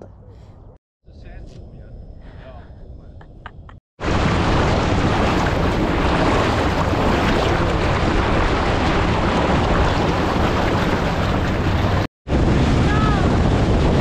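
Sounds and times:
wind buffeting microphone: 0:01.3 - 0:14.0
outboard motor drone: 0:04.0 - 0:14.0
water spraying off hull: 0:04.0 - 0:14.0.

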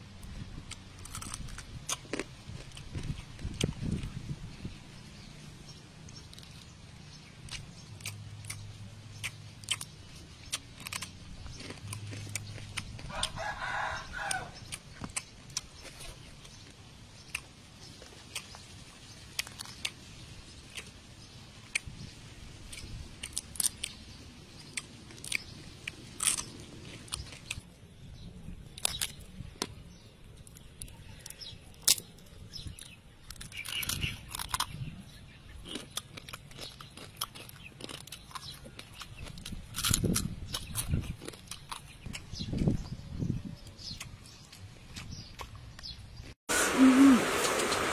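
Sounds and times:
chewing: 0:00.6 - 0:04.2, 0:06.0 - 0:21.0, 0:21.6 - 0:21.9, 0:22.7 - 0:27.8, 0:28.7 - 0:43.0, 0:43.6 - 0:46.0
crab shells cracking: 0:24.6 - 0:27.7, 0:30.4 - 0:34.8.

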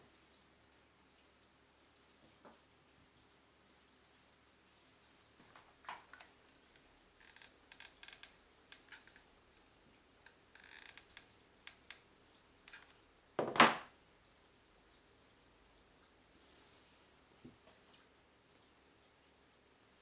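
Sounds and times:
small clicks and rustles: 0:04.9 - 0:13.1.

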